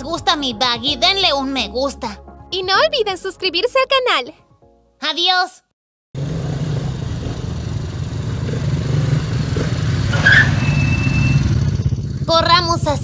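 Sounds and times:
quad bike engines idling: 6.2s - 13.0s
short high tone: 10.2s - 11.8s.

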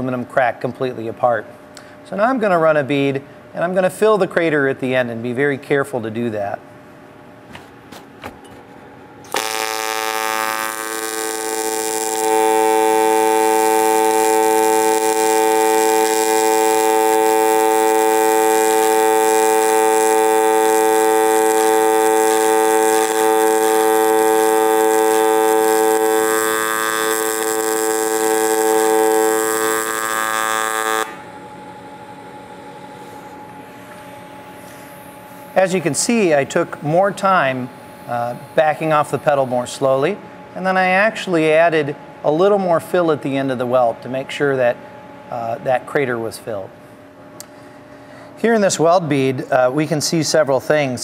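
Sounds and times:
welding arc buzzing: 9.2s - 40.0s.

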